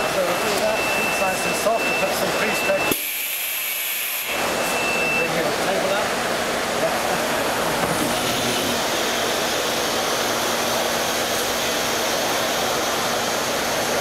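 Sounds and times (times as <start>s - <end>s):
machinery rushing noise: 4.1s - 14.0s.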